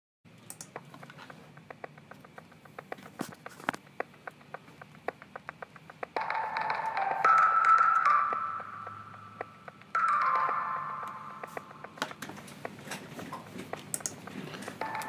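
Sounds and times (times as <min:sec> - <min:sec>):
irregular clicks and ticks: 0:00.3 - 0:15.0
steady electronic tone: 0:06.2 - 0:12.7.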